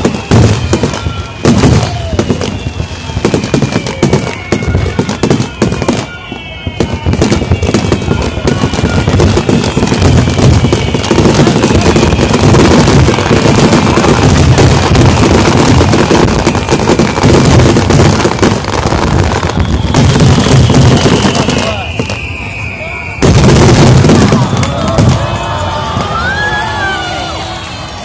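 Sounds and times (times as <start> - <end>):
falling firework whistle: 0.0 - 28.0
fireworks crackling and booming: 0.0 - 28.0.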